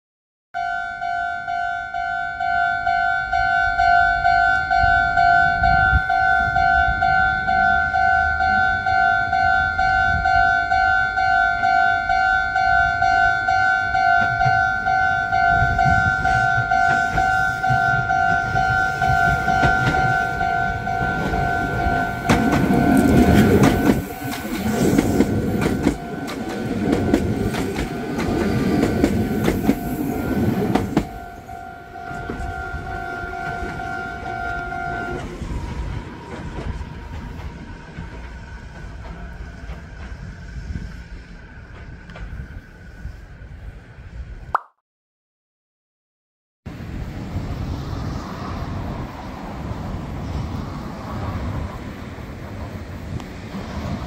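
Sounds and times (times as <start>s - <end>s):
level crossing alarm ringing: 0.6s - 37.3s
electric train rumbling past: 0.6s - 44.5s, 46.7s - 54.0s
wheels clattering over rail joints: 16.3s - 31.2s.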